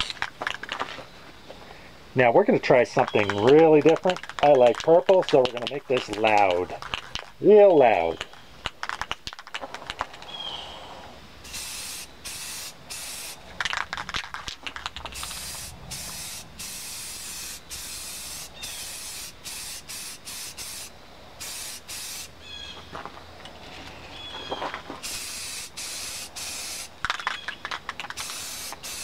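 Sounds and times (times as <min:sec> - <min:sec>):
spray paint can hissing: 0:03.0 - 0:07.2, 0:08.2 - 0:10.2, 0:11.4 - 0:22.3, 0:25.0 - 0:29.0.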